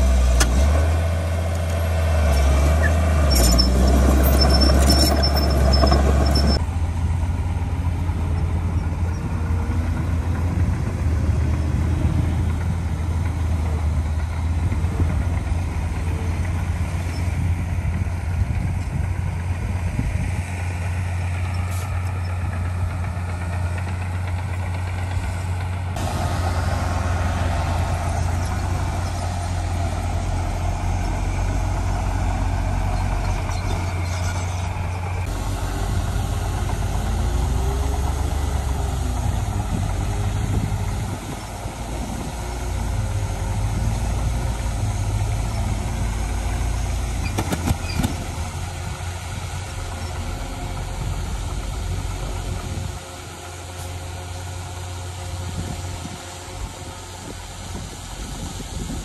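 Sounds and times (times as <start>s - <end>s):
heavy diesel machinery running: 0.0s - 59.0s.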